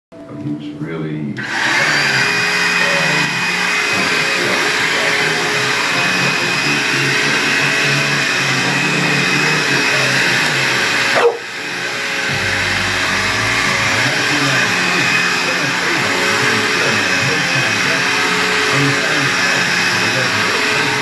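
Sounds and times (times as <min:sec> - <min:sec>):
vacuum cleaner motor whining: 0:01.4 - 0:21.0
dog barking: 0:11.1 - 0:11.5.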